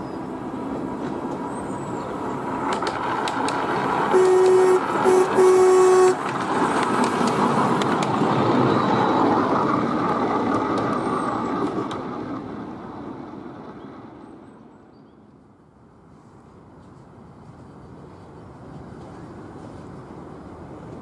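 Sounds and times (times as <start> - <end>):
train wheels rumbling and clicking: 0.0 - 21.0
locomotive horn toot: 4.1 - 6.3.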